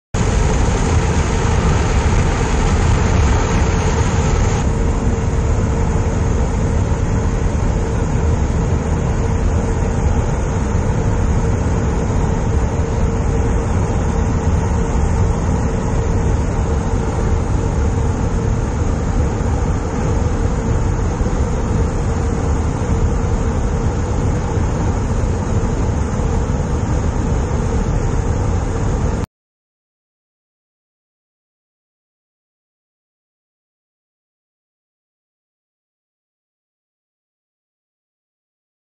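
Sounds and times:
steady hum: 0:00.2 - 0:29.3.

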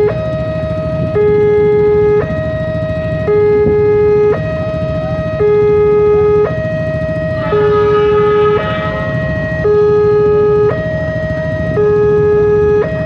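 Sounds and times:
two-tone crossing alarm: 0:00.0 - 0:13.0
faint high-pitched sound: 0:07.4 - 0:09.8.

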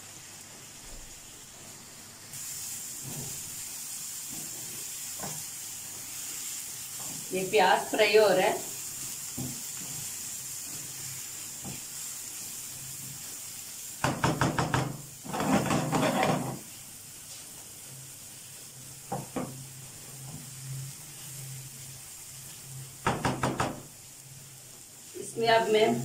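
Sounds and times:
onions sizzling in oil: 0:00.0 - 0:26.0
spatula scraping a pan: 0:15.2 - 0:16.7.

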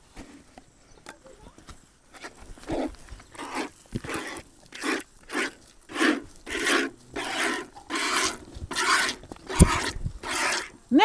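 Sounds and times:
milk squirting in spurts: 0:02.2 - 0:10.8.

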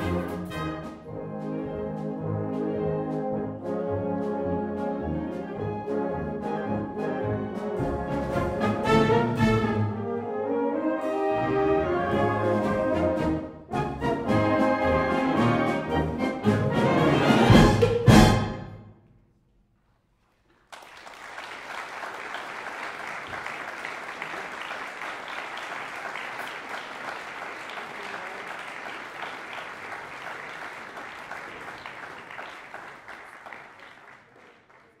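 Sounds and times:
audience applauding: 0:20.4 - 0:35.0.

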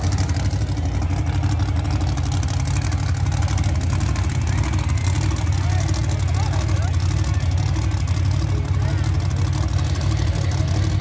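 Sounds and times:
monster truck engine drone: 0:00.0 - 0:11.0.

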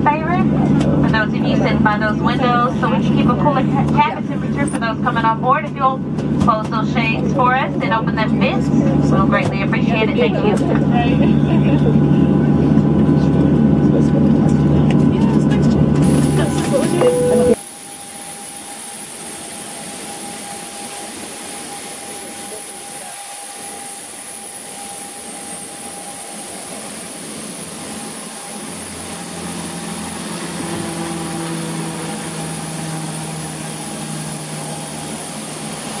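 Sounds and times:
low hum: 0:11.6 - 0:17.6
thin high whine: 0:16.1 - 0:17.6.

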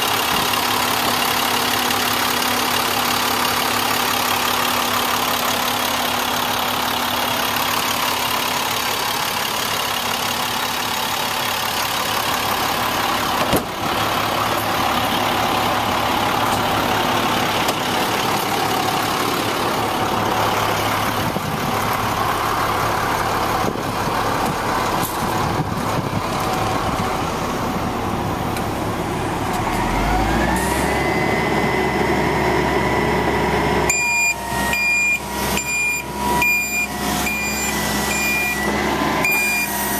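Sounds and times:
diesel engine running: 0:00.0 - 0:39.9
rising whine: 0:26.4 - 0:39.9
beeping alarm: 0:33.9 - 0:39.9.

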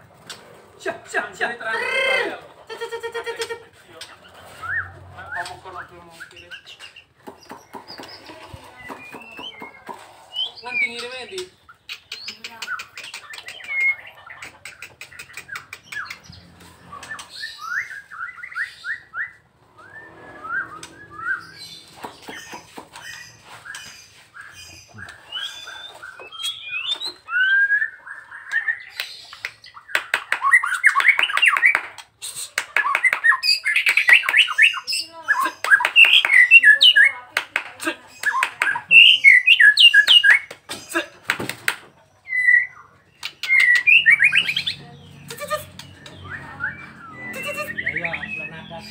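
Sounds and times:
songbird whistling: 0:16.9 - 0:31.8, 0:42.2 - 0:44.8, 0:45.8 - 0:48.6.

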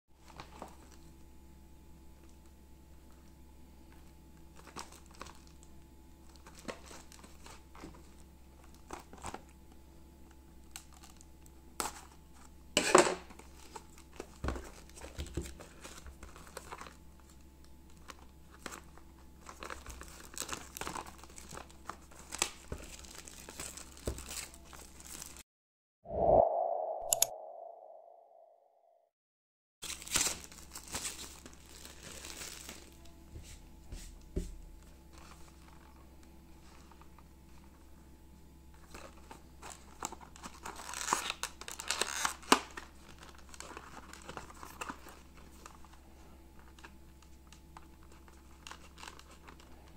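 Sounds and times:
plastic wrap crinkling and tearing: 0:04.6 - 0:05.6, 0:13.4 - 0:25.4, 0:29.8 - 0:33.0, 0:38.8 - 0:45.9, 0:46.6 - 0:49.9.

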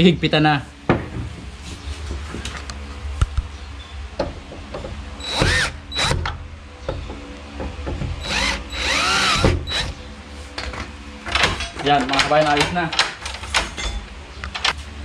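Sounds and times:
cordless drill whirring: 0:05.2 - 0:06.2, 0:08.2 - 0:09.9.

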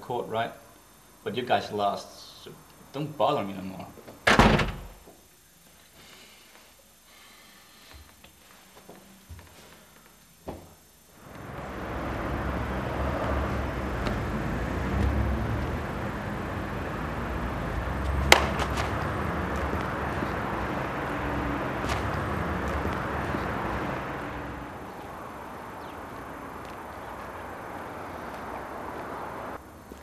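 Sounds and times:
sharp snap: 0:18.2 - 0:19.0.

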